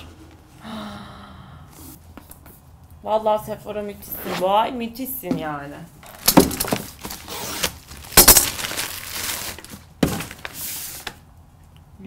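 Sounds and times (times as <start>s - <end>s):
paper bag rustling: 6.1s - 11.2s.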